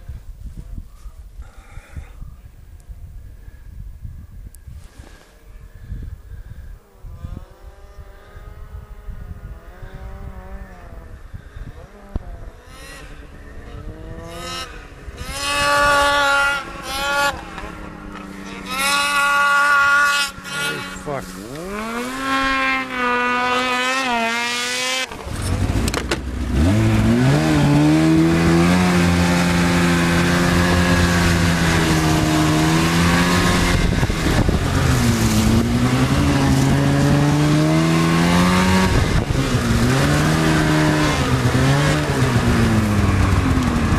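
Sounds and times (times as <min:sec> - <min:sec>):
snowmobile engines revving: 0:06.8 - 0:43.9.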